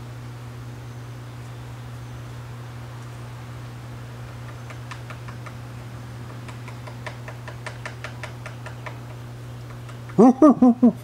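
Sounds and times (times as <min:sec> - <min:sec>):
steady low hum: 0:00.0 - 0:11.0
woodpecker tapping on wood: 0:04.2 - 0:10.2.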